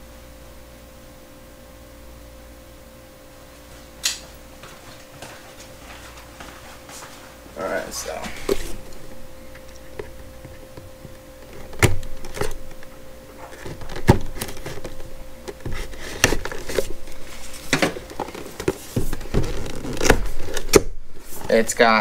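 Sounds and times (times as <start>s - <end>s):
cardboard box rustling: 13.4s - 21.6s.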